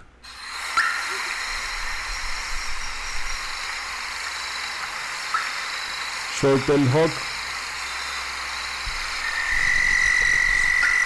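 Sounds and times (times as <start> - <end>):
nighthawk calls: 4.4 - 6.3, 7.3 - 11.0.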